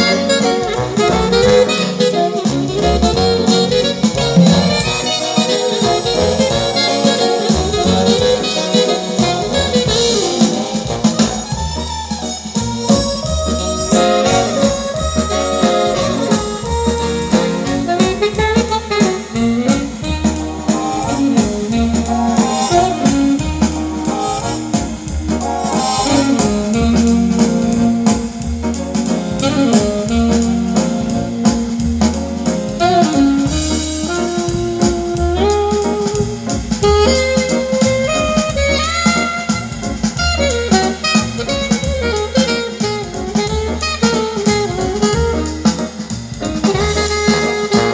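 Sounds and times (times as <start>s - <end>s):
music with melody over bass beat: 0.0s - 47.9s.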